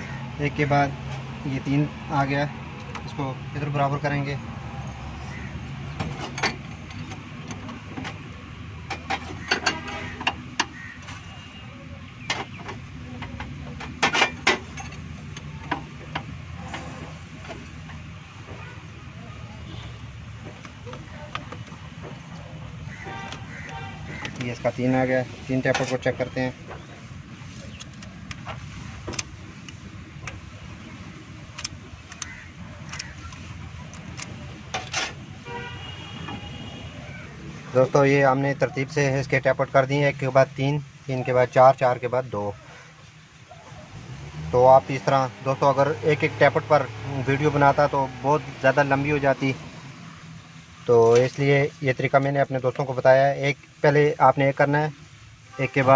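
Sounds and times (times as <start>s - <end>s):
passing traffic rumble: 0.0s - 55.9s
metallic clicks and knocks on engine: 5.9s - 10.8s, 12.2s - 16.8s, 20.4s - 24.6s, 27.7s - 35.3s
metal tool clicks and taps: 27.7s - 28.5s, 31.5s - 34.9s
car horn toot: 35.4s - 37.1s.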